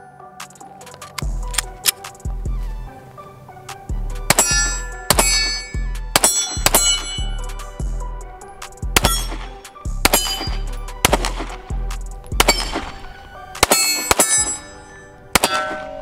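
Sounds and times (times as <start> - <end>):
steel targets clanging: 4.3 - 7.4, 9.0 - 10.7, 13.6 - 16.0
pistol shots: 4.3 - 7.6, 9.0 - 11.8, 12.4 - 16.0.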